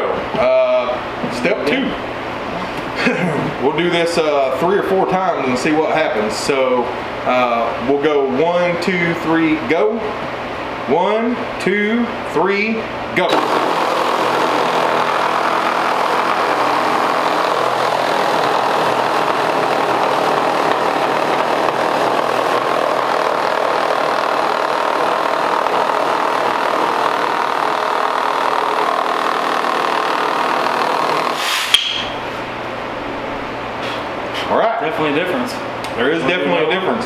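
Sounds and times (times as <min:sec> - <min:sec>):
reciprocating saws cutting wood: 0:13.2 - 0:31.8
sharp knock: 0:31.4 - 0:32.2.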